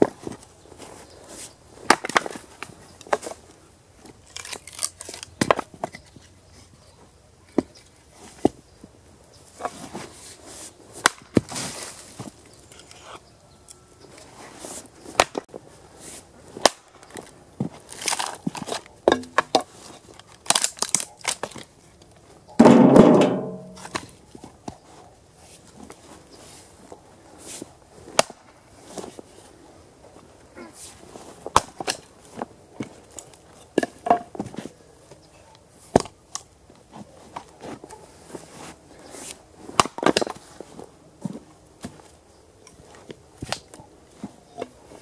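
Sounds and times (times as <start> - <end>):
axe chopping wood: 11.0 - 11.5, 15.2 - 15.4, 16.6 - 17.0, 18.0 - 19.7, 28.2 - 28.4, 31.5 - 32.0, 39.8 - 40.4
wood pieces knocking together: 18.0 - 19.7.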